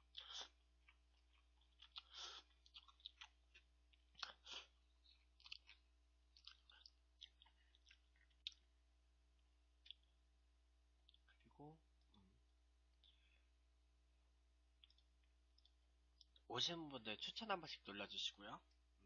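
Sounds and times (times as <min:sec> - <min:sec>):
wet chewing clicks: 0:00.0 - 0:08.7, 0:09.8 - 0:10.1, 0:14.8 - 0:16.5.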